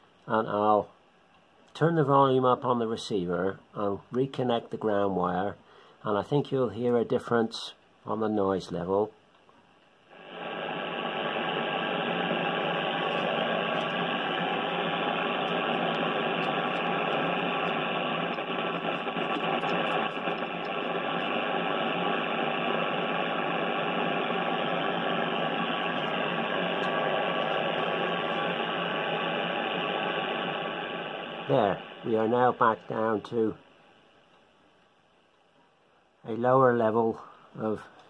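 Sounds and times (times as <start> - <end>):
radio static hiss: 10.0 - 34.8, 35.6 - 38.0.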